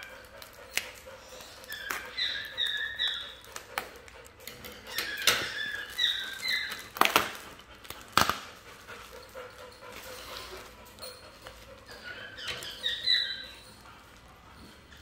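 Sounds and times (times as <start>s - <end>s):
dog whimpering: 0.0s - 4.1s, 4.7s - 7.0s, 9.2s - 15.0s
plastic packaging crackling: 5.8s - 8.6s.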